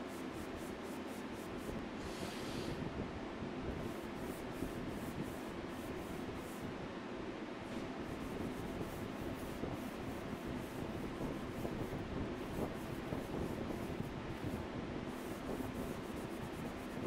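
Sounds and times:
sanding sponge rubbing wood: 3.8 - 6.6, 8.0 - 17.0.

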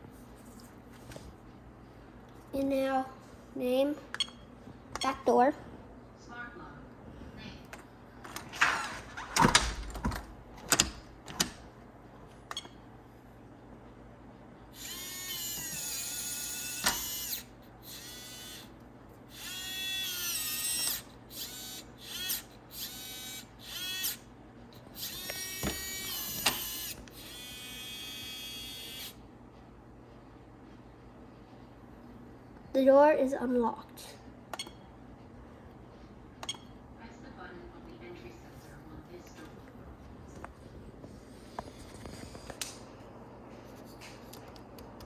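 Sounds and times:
lock motor whirring: 14.8 - 18.7, 19.3 - 24.2, 24.8 - 29.2.

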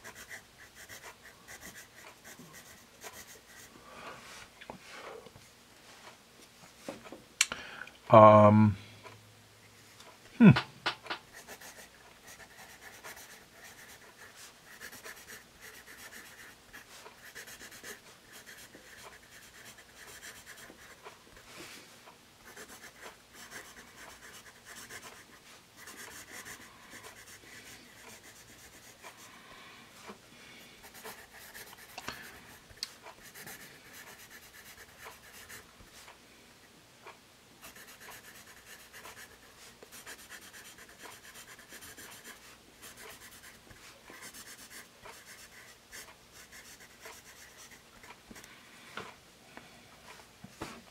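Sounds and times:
pencil scratching on paper: 0.0 - 3.7, 11.3 - 21.2, 22.5 - 29.3, 30.8 - 36.0, 37.6 - 48.2.

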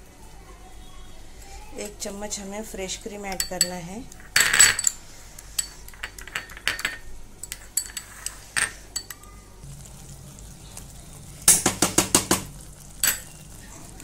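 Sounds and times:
spoon clinking on glass bowl: 3.3 - 3.8, 4.4 - 9.2, 13.0 - 13.4
spoon knocking on metal pan: 11.5 - 13.2.

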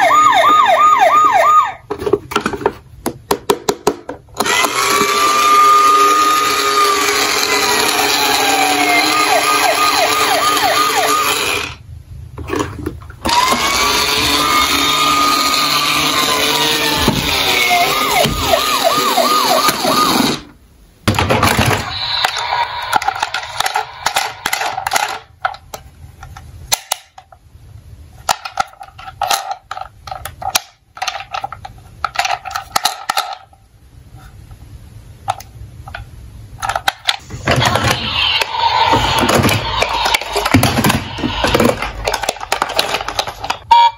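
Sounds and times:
toy siren wailing: 0.0 - 1.8, 5.0 - 11.6, 13.4 - 20.4
plastic toy cars clattering: 21.1 - 27.4, 28.2 - 33.6, 36.6 - 43.7.

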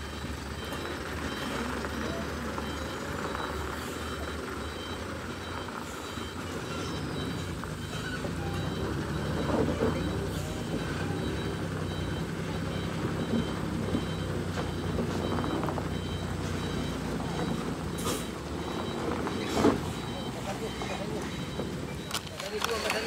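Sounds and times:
diesel truck engine running: 0.0 - 23.0
reversing alarm beeping: 0.0 - 23.0.

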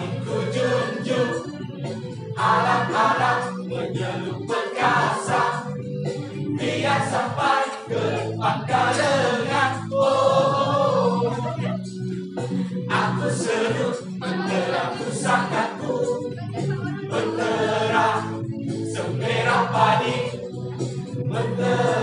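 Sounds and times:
choir singing: 0.0 - 5.8, 6.4 - 11.8, 12.5 - 20.5, 21.2 - 22.0
instrumental backing: 0.0 - 22.0
singers breathing: 12.0 - 12.9.

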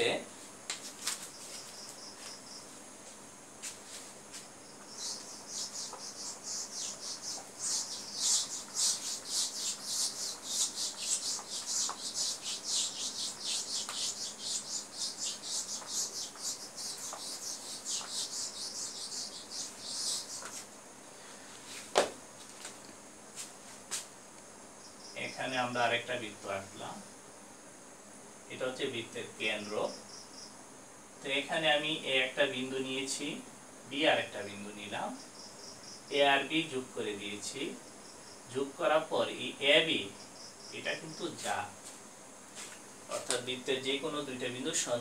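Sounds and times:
eraser rubbing on whiteboard: 5.0 - 20.7.

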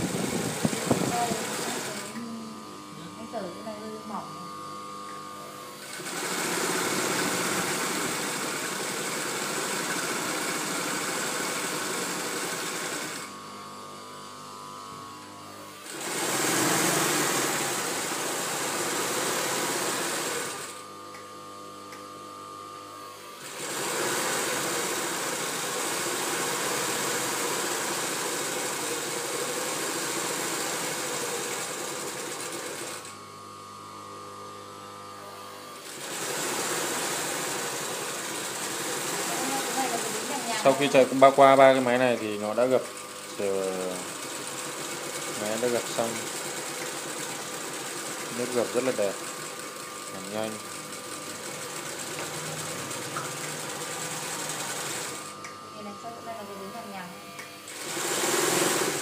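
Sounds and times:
industrial sewing machine running: 0.0 - 2.4, 5.6 - 13.4, 15.6 - 20.9, 23.2 - 33.2, 35.6 - 55.4, 56.6 - 59.0
quiet steady machine hum: 0.0 - 5.9, 49.0 - 57.8.

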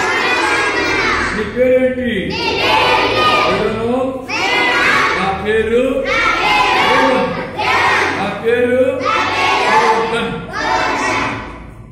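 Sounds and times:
children chanting in unison: 0.0 - 1.4, 2.3 - 11.8.

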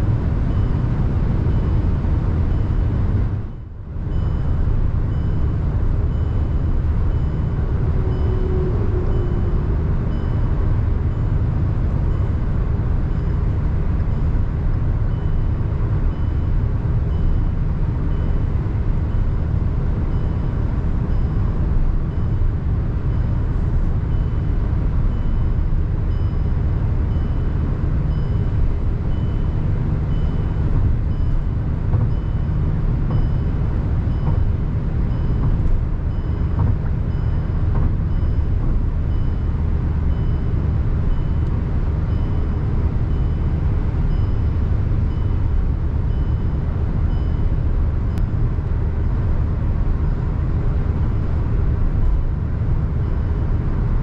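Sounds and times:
car engine and tyre drone: 0.0 - 54.0
faint high beep: 4.1 - 11.4, 32.1 - 34.5.

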